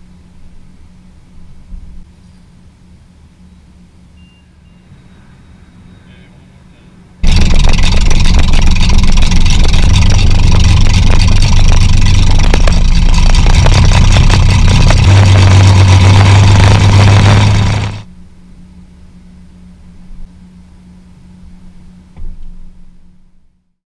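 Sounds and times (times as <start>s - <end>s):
aircraft engine running: 7.2s - 18.1s.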